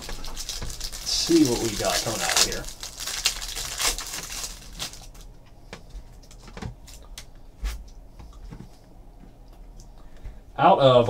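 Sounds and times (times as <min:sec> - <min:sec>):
plastic wrapping rustling: 0:00.0 - 0:07.0.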